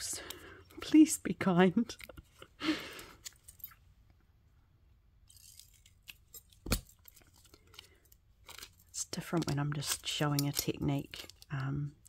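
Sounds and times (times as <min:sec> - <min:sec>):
tape crinkling and clicking: 0:05.3 - 0:12.0.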